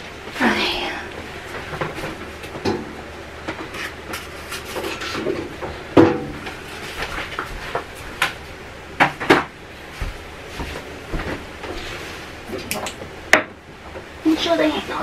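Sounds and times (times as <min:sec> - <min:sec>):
knocks and bumps of items: 0:01.4 - 0:08.4, 0:09.0 - 0:12.0.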